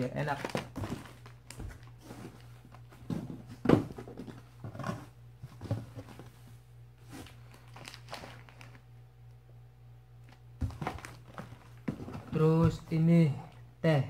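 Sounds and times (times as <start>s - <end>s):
plastic packets rustling: 0.0s - 3.4s, 7.1s - 8.9s, 10.3s - 12.4s
items shifting in a box: 0.0s - 8.8s, 10.6s - 12.9s
steady low hum: 0.0s - 14.0s.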